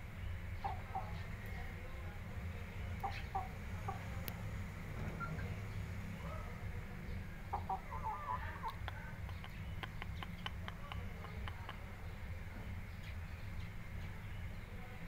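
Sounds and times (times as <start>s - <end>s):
steady low hum: 0.0s - 15.0s
chickens clucking: 3.0s - 4.4s, 7.3s - 12.2s.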